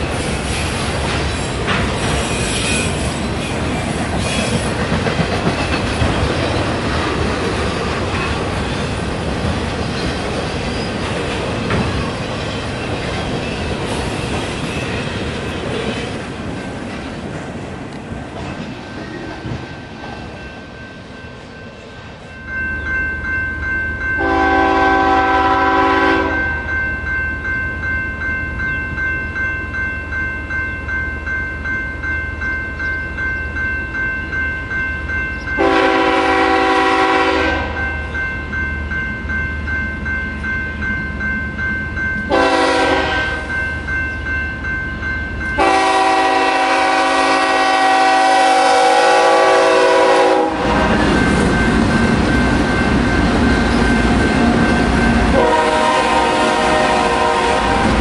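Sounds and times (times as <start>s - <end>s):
train wheel squeal: 0.0s - 6.7s, 9.8s - 16.0s
train wheels clattering: 0.0s - 20.7s
railroad crossing bell ringing: 20.0s - 58.0s
locomotive air horn: 24.2s - 26.5s, 35.6s - 37.8s, 42.3s - 43.5s, 45.6s - 50.8s, 55.3s - 58.0s.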